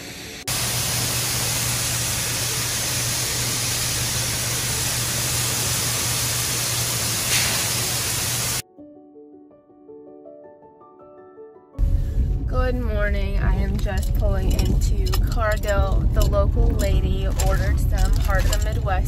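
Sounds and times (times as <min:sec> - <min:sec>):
low hum of machinery: 0:00.0 - 0:08.6, 0:13.4 - 0:19.0
grain pouring into a hopper: 0:00.5 - 0:08.6.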